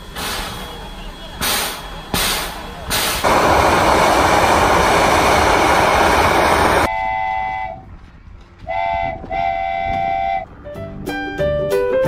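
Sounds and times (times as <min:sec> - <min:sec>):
train whistle toots: 0:00.2 - 0:07.9, 0:08.6 - 0:10.5
steam venting hiss: 0:01.4 - 0:06.9.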